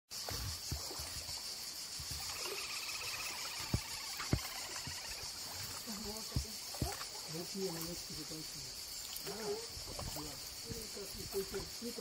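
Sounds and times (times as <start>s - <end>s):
insect chorus: 0.1s - 12.0s
faint bird twittering: 1.7s - 7.3s.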